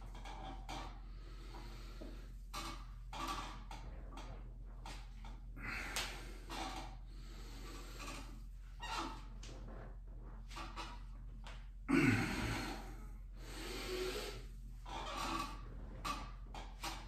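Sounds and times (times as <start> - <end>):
low steady hum: 0.0 - 17.0
man breathing hard: 5.5 - 6.5, 7.1 - 8.4, 11.9 - 14.6.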